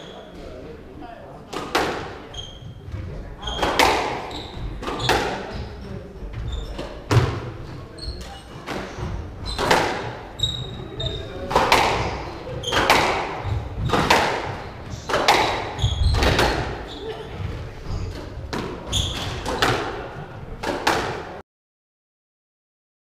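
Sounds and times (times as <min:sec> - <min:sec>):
squash ball hitting rackets and walls: 0:01.5 - 0:21.4
shoes squeaking on wooden floor: 0:02.0 - 0:20.1.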